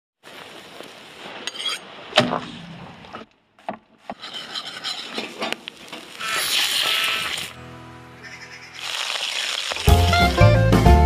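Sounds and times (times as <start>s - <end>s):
meat sizzling and crackling: 5.6s - 7.6s, 8.2s - 10.4s.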